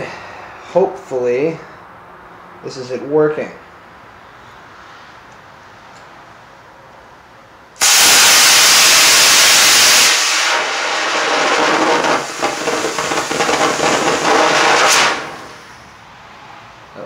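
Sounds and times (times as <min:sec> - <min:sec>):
rocket motor rushing hiss: 0:07.8 - 0:15.8.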